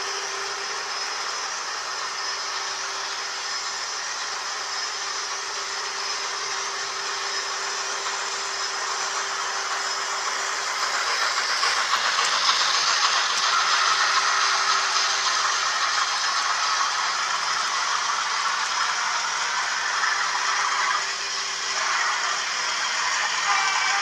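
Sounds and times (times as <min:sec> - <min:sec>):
electric motor hum: 0:00.0 - 0:24.0
model train wheels rattling on track: 0:09.7 - 0:21.0.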